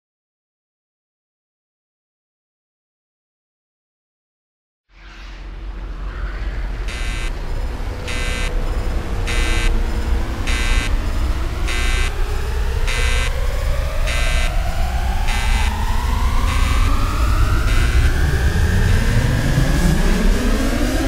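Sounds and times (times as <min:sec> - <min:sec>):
machinery low rumble: 0:05.1 - 0:21.0
rising whine: 0:05.1 - 0:21.0.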